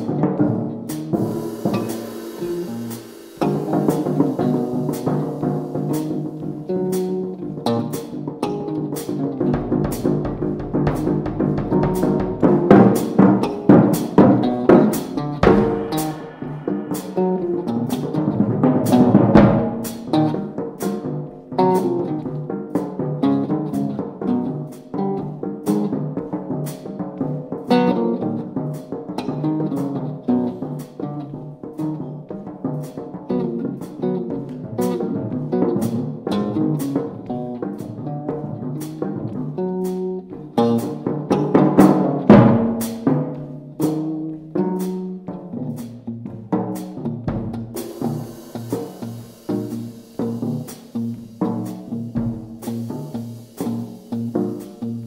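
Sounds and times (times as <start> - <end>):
drums and cymbals hits: 0.0 - 27.9, 31.8 - 44.2, 44.8 - 55.0
electric guitar runs: 1.1 - 7.3.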